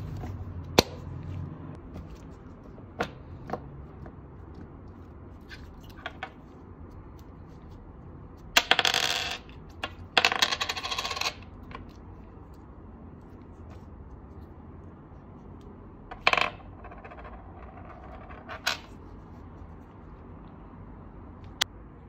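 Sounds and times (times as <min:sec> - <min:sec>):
coin clattering on a tabletop: 0:08.5 - 0:11.9, 0:16.1 - 0:18.9.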